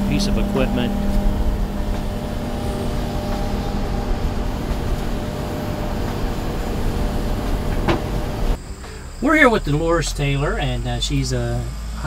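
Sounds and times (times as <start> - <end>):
excavator diesel engine rumbling: 0.0 - 12.0
faint steady hum: 0.0 - 12.0.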